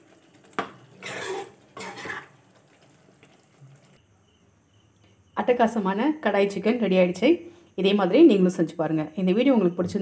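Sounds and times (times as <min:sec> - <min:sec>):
spoon scraping pan: 0:00.2 - 0:02.9.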